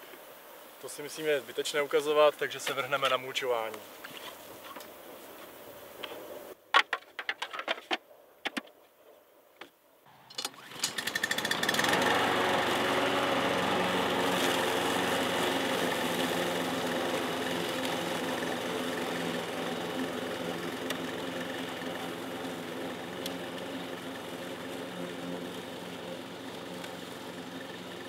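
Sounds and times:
lawn mower engine running: 0:10.1 - 0:28.0.

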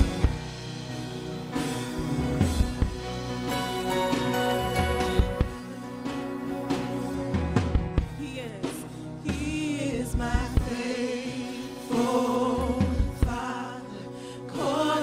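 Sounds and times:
band playing: 0:00.0 - 0:13.8
drum hits: 0:04.9 - 0:05.7
group singing gospel song: 0:09.2 - 0:15.0.

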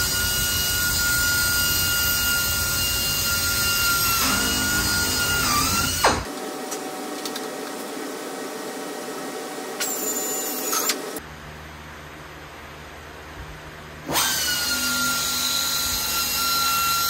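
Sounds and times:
pneumatic drill whining: 0:00.0 - 0:06.3, 0:14.1 - 0:17.0.

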